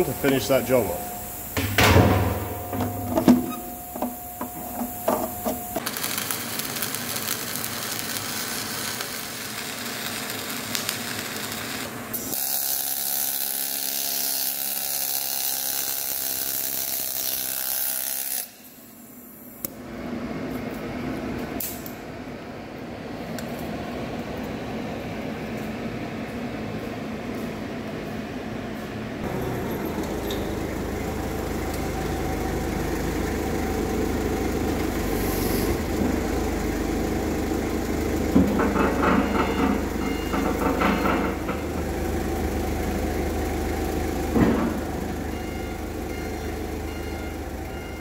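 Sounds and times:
forklift engine running: 0:00.0 - 0:05.9, 0:29.2 - 0:48.0
steel knocks and clatters: 0:01.0 - 0:05.8, 0:38.4 - 0:41.9.

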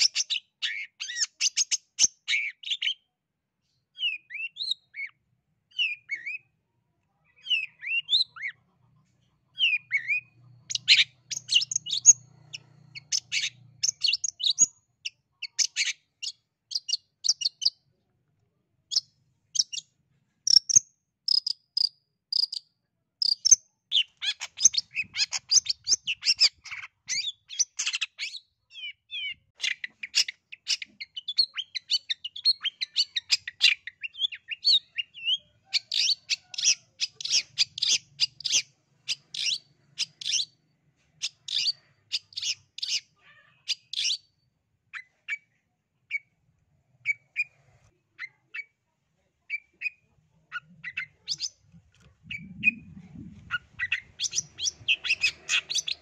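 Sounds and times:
shrike singing chattering song: 0:09.5 - 0:17.8, 0:20.5 - 0:22.6, 0:23.2 - 0:40.4, 0:49.5 - 0:56.0.

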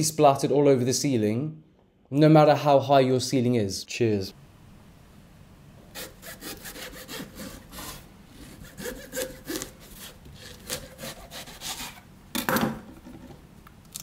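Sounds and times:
knife sawing through melon rind: 0:05.9 - 0:12.0.

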